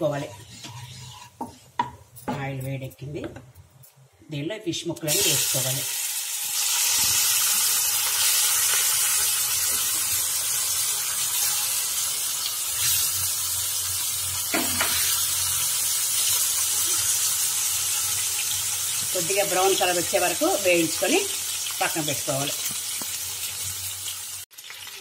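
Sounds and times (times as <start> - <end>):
fish sizzling in oil: 5.0 - 25.0.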